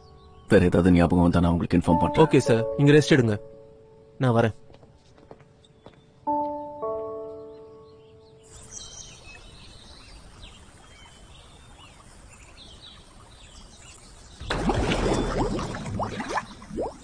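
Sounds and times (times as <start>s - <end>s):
birds chirping: 0.0s - 17.0s
musical note: 1.8s - 4.0s, 6.3s - 8.4s
loud water splash: 14.4s - 17.0s.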